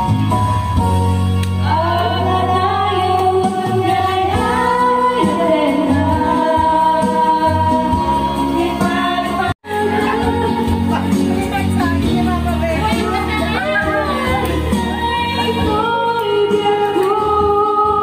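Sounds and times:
backing track over loudspeakers: 0.0 - 18.0
women singing karaoke: 1.5 - 18.0.

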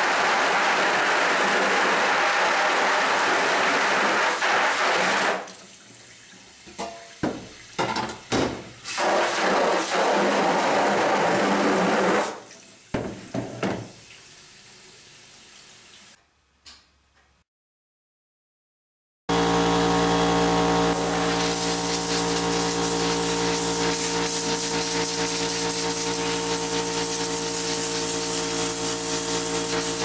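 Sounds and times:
hose spray hissing against screen: 20.9 - 30.0.

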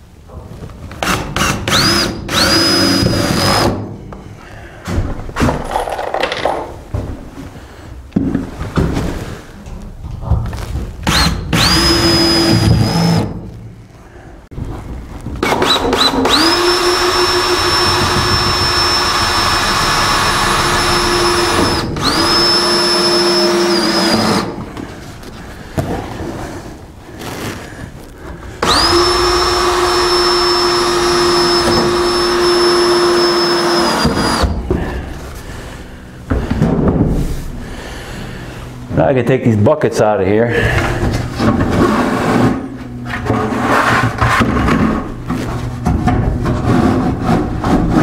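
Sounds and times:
cordless drill whining: 1.0 - 3.8, 11.1 - 13.4, 15.4 - 24.6, 28.6 - 34.6.

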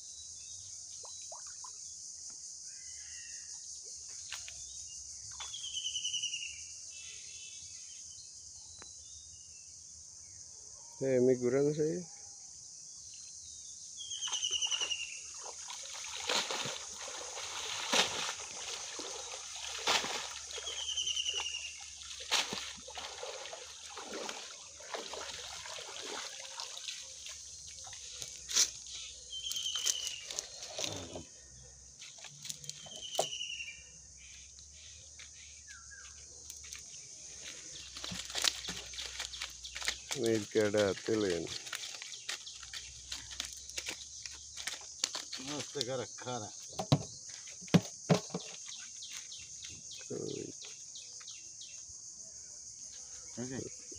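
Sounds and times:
water sloshing and splashing: 14.3 - 28.9, 37.8 - 45.8.

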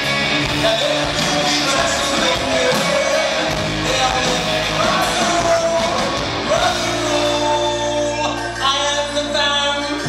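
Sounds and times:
live rock band playing: 0.0 - 10.0
man singing: 0.4 - 10.0.

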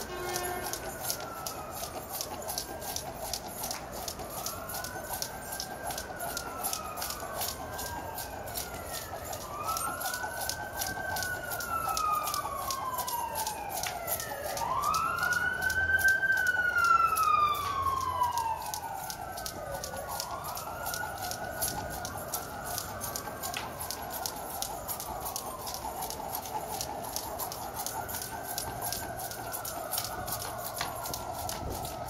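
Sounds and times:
emergency sirens wailing: 0.0 - 32.0
jump rope slapping concrete: 0.0 - 32.0.

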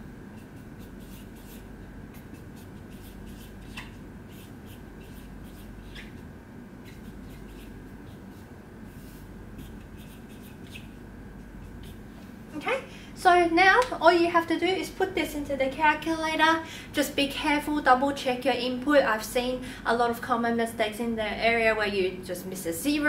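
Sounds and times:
low background hum: 0.0 - 23.0
marker pen writing on whiteboard: 0.4 - 12.0.

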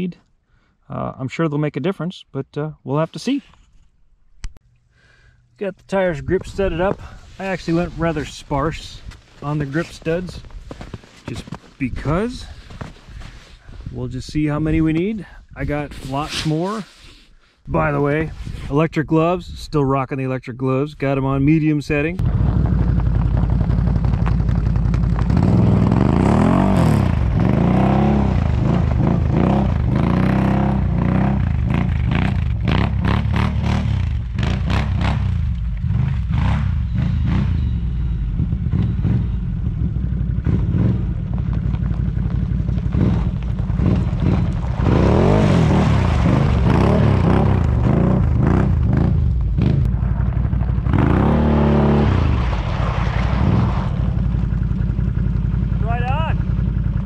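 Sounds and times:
quad engine revving: 22.2 - 41.3, 42.8 - 50.0, 50.6 - 52.5.

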